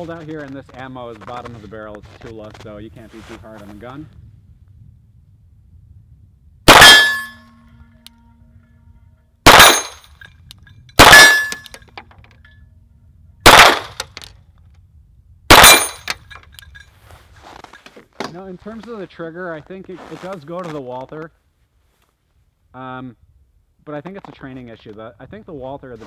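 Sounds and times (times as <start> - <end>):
pistol shots: 6.7 - 7.4, 9.5 - 10.0, 11.0 - 11.7, 13.4 - 14.1, 15.5 - 16.2.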